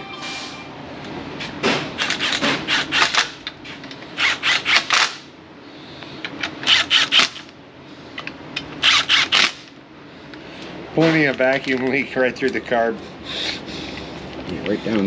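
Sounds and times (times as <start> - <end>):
impact wrench rapid clicks: 2.0 - 3.4, 4.2 - 5.2, 6.5 - 7.5, 8.8 - 9.7.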